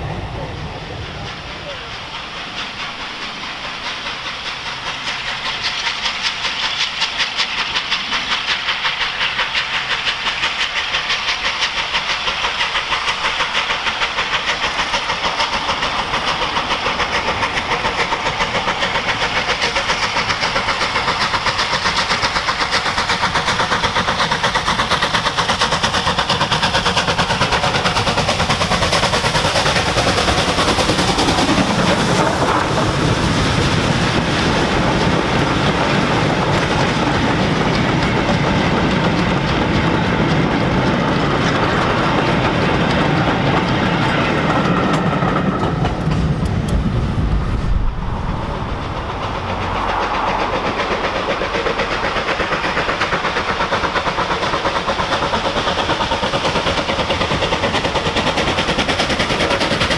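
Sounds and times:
locomotive wheels rumbling: 0:00.0 - 0:59.9
steam locomotive exhaust beats: 0:00.0 - 0:59.9.

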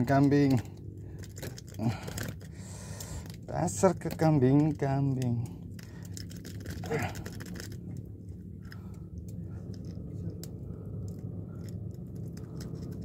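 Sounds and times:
faint clicks and scratches of hook: 0:00.0 - 0:13.0
steady low hum: 0:00.0 - 0:13.0.

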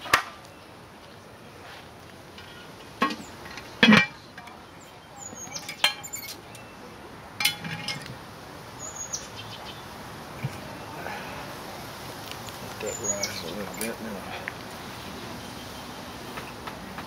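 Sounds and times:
birds chirping: 0:02.4 - 0:07.1, 0:08.7 - 0:11.6, 0:12.2 - 0:17.0
cast iron lids clanking: 0:03.0 - 0:04.6, 0:05.5 - 0:06.4, 0:07.4 - 0:08.2.

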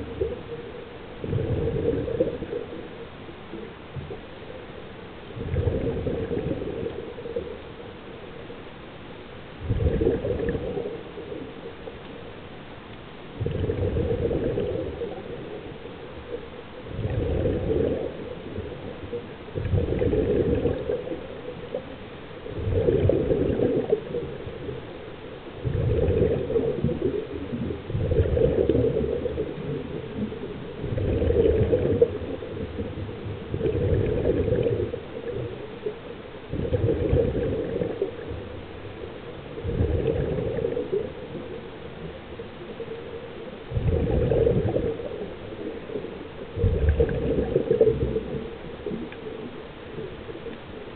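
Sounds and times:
bubbling exhalation: 0:09.6 - 0:10.9, 0:13.4 - 0:15.2, 0:16.9 - 0:18.3, 0:19.6 - 0:21.1, 0:22.6 - 0:24.2, 0:25.6 - 0:35.0, 0:36.5 - 0:38.5, 0:39.6 - 0:41.1, 0:43.7 - 0:45.2, 0:46.6 - 0:49.1.

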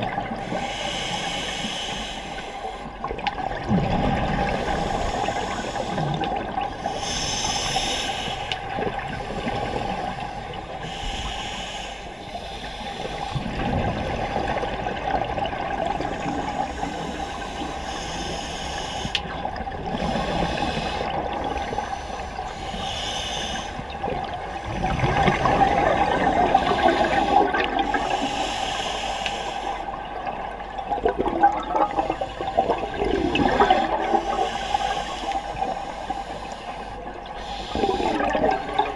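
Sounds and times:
exhaled air bubbling: 0:00.0 - 0:29.0, 0:29.6 - 0:38.9
regulator inhale hiss: 0:00.4 - 0:02.9, 0:04.5 - 0:08.8, 0:09.4 - 0:13.5, 0:16.0 - 0:19.3, 0:20.0 - 0:23.9, 0:26.5 - 0:30.0, 0:31.9 - 0:38.9.

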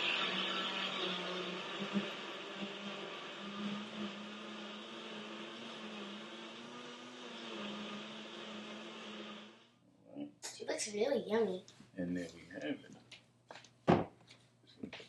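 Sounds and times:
blender motor whirring: 0:00.0 - 0:09.8.

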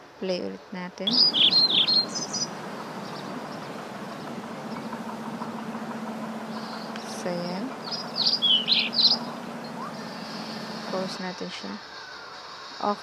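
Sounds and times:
faint low hum: 0:01.0 - 0:11.5
falling bird chirps: 0:01.1 - 0:11.0
steady rushing noise: 0:01.1 - 0:11.3.

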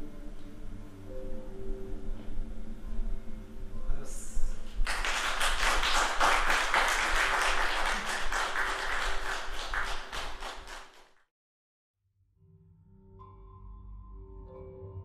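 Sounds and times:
audience applauding: 0:04.8 - 0:11.1.

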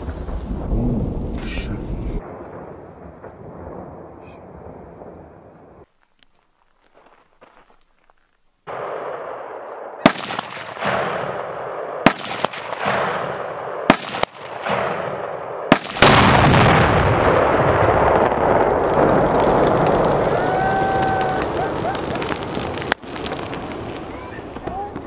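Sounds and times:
sharp cracks: 0:08.6 - 0:25.0
big explosion blast: 0:15.8 - 0:23.8
loud rumbling rush: 0:16.2 - 0:25.0.

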